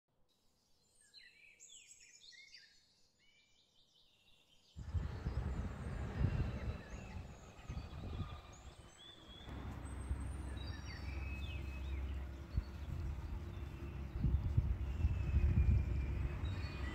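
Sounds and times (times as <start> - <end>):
small birds chirping: 0.6 - 16.9
loud low rumble: 4.8 - 16.9.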